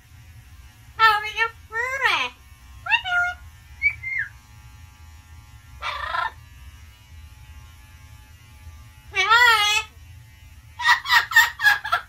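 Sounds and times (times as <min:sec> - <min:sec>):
steady low hum: 0:00.0 - 0:12.0
parrot whistled note: 0:03.8 - 0:04.3
parrot raspy squawk: 0:05.8 - 0:06.4, 0:10.8 - 0:12.0.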